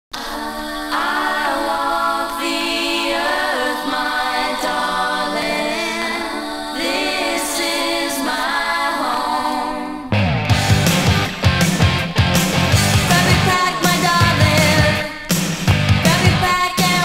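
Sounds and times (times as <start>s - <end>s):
female voices singing in harmony: 0.2s - 10.1s, 13.1s - 15.3s, 16.1s - 17.0s.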